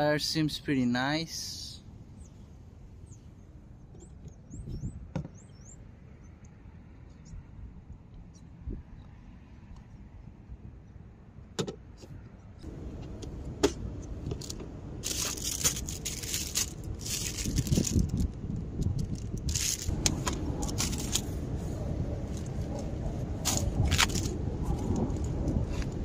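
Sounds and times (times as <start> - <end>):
rustling and clatter of items: 13.6 - 18.3, 18.9 - 21.4, 22.2 - 26.0.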